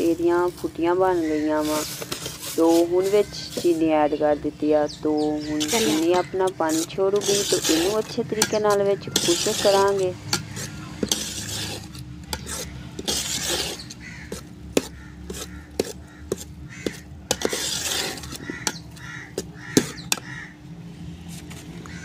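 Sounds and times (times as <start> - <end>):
metal spoon scraping steel pot: 0.0 - 4.3, 5.2 - 20.3
crow cawing: 14.0 - 20.6.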